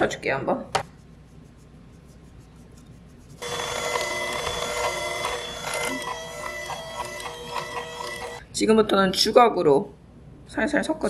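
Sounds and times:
flour scratching through sieve: 0.9s - 4.4s
electric hand mixer whine: 3.4s - 8.4s.

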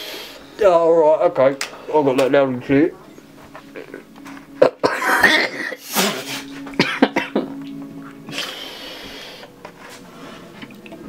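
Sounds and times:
person coughing: 4.6s - 7.6s.

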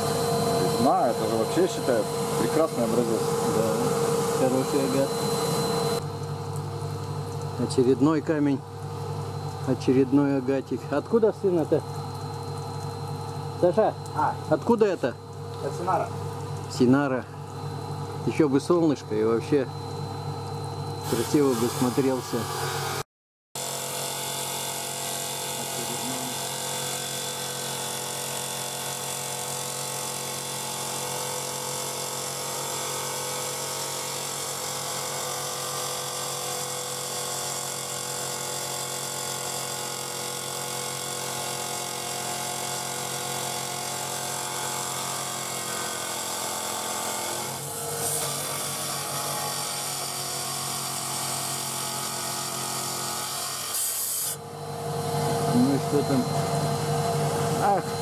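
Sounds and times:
stone-cutting saw grinding stone: 0.0s - 6.0s, 21.0s - 23.0s, 23.6s - 54.4s.

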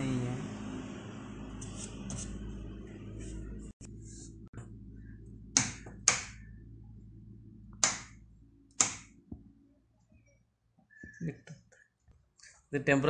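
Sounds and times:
oven control switches clicking: 7.8s - 8.1s, 8.7s - 9.1s.

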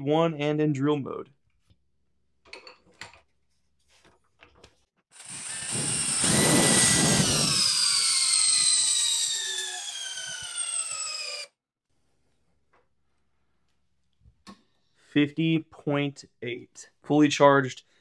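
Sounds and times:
cordless drill driving screw into wood: 5.2s - 11.5s.

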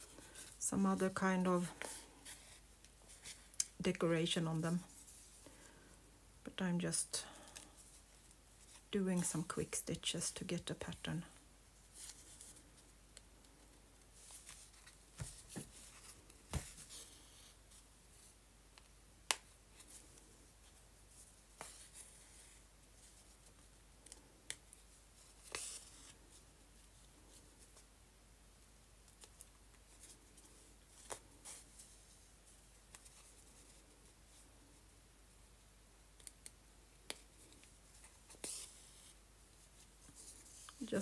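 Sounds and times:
thread and paper rustling: 0.0s - 5.9s, 6.9s - 18.9s, 37.1s - 41.0s.

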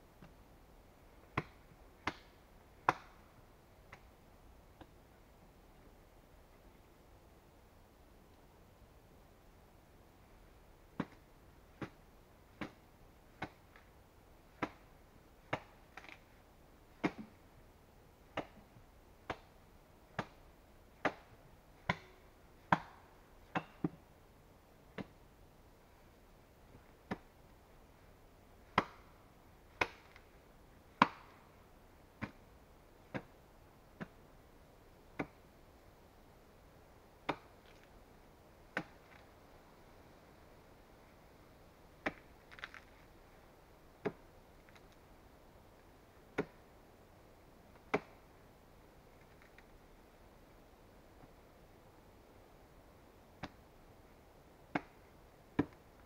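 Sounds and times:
axe chopping wood: 1.3s - 3.2s, 11.0s - 13.8s, 14.5s - 16.2s, 16.9s - 17.4s, 18.3s - 19.5s, 20.1s - 20.4s, 21.0s - 24.0s, 25.0s - 25.2s, 27.1s - 27.3s, 28.6s - 30.3s, 30.9s - 31.4s, 32.2s - 32.4s, 33.1s - 33.4s, 35.2s - 35.4s, 37.3s - 37.8s, 38.7s - 39.2s, 42.0s - 42.9s, 44.0s - 44.2s, 46.3s - 46.6s, 47.9s - 48.2s, 54.7s - 55.0s, 55.6s - 55.8s.

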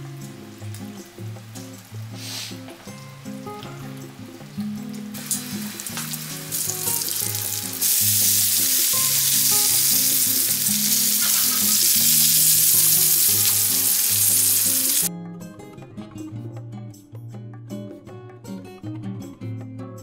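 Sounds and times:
bacon sizzling in a frying pan: 4.9s - 15.1s
pancake sizzling in butter: 5.1s - 15.1s.

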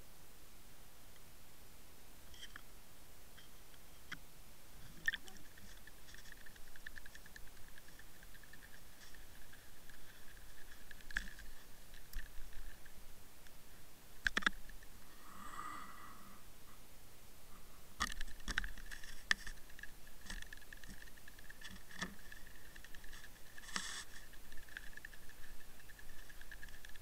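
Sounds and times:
faint high whine: 0.0s - 27.0s
camera housing scraping reeds: 4.8s - 13.0s, 18.0s - 27.0s
muffled underwater clicks and knocks: 4.8s - 13.0s, 14.2s - 14.9s, 18.0s - 27.0s.

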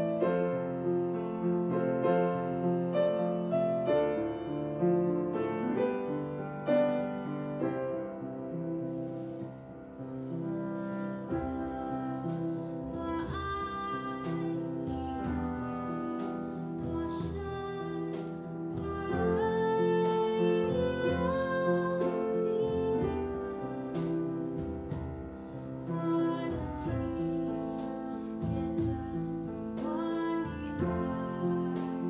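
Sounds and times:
clarinet: 0.0s - 32.0s
double bass: 0.0s - 32.0s
piano: 0.0s - 32.0s
woman singing a slow ballad: 10.5s - 32.0s.

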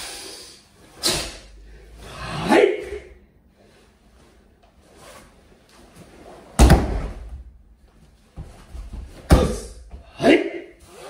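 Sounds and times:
soft thumps and rustles: 5.8s - 10.1s
body slamming onto mat: 6.5s - 7.5s.

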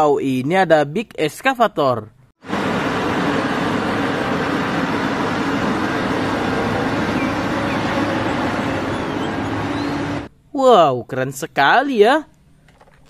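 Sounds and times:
diesel engine drone: 2.4s - 10.3s.

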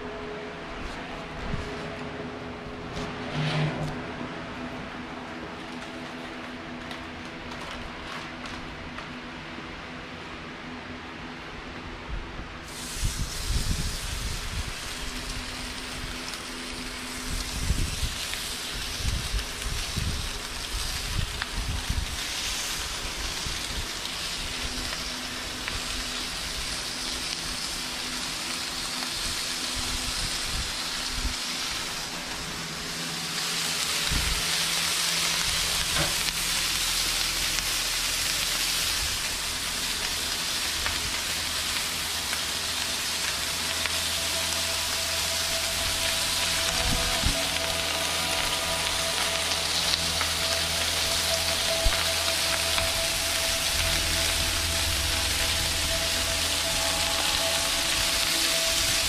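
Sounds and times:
bacon sizzling on a griddle: 12.6s - 59.0s.

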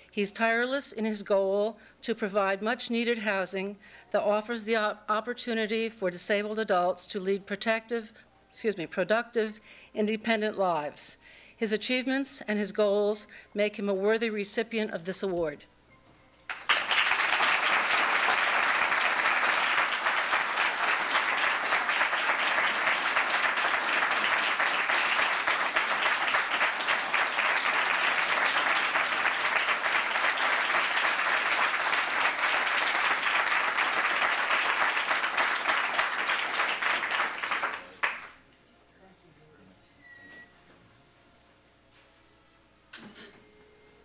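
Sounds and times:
audience applauding: 16.5s - 38.4s.

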